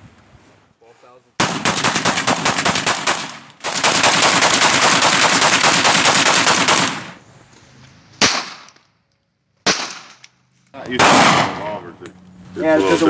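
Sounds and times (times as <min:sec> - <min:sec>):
rifle shots: 0:01.4 - 0:07.2, 0:08.2 - 0:08.7, 0:09.6 - 0:10.2, 0:11.0 - 0:11.8.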